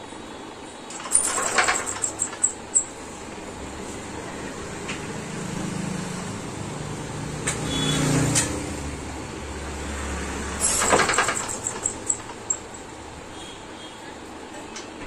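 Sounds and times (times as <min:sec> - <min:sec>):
engine running with low hum: 0:00.9 - 0:13.6
sharp engine knocks: 0:10.6 - 0:12.9.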